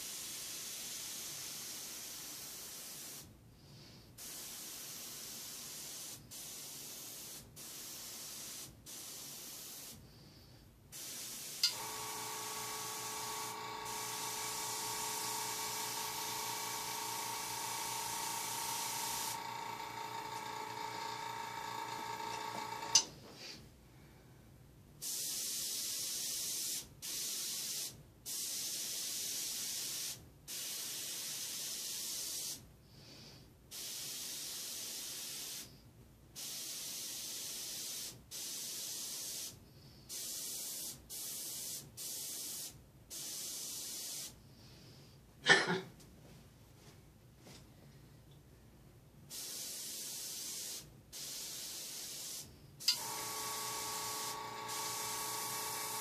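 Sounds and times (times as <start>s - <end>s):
airbrush hissing: 4.2s - 23.1s, 49.3s - 56.0s
air compressor humming: 11.6s - 23.1s, 52.8s - 56.0s.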